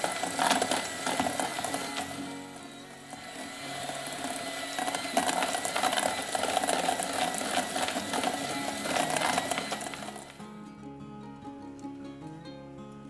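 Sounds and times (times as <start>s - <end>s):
electric hand mixer running: 0.0s - 10.5s.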